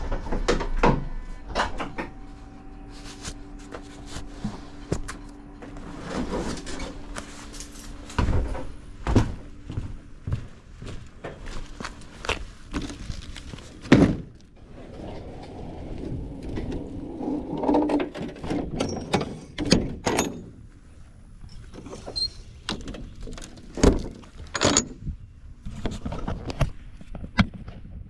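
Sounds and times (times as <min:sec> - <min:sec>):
door scraping rattle: 0:04.4 - 0:08.8, 0:13.6 - 0:20.5
metal clanks and knocks: 0:17.6 - 0:20.6, 0:22.8 - 0:25.1.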